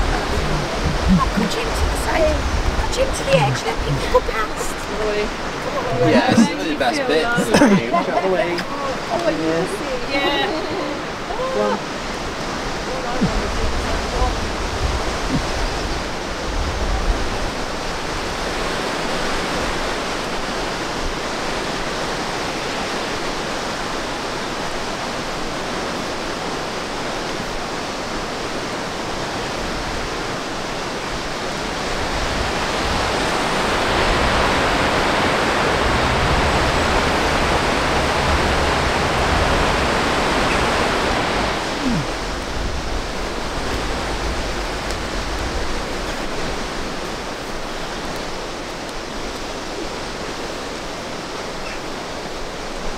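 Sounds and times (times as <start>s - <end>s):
outdoor rushing noise: 32.4s - 47.4s
low rumble: 33.8s - 45.8s.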